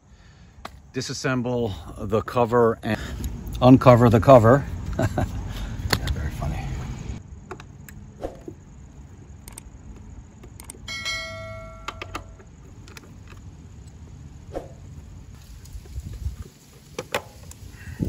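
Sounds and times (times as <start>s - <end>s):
bright metallic ring: 10.9s - 12.4s.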